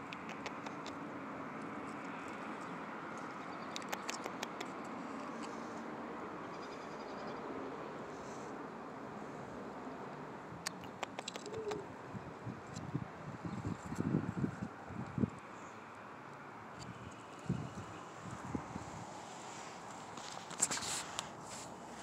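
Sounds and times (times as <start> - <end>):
outdoor background noise: 0.0 - 22.0
small sharp clicks: 3.6 - 5.6, 10.7 - 11.8.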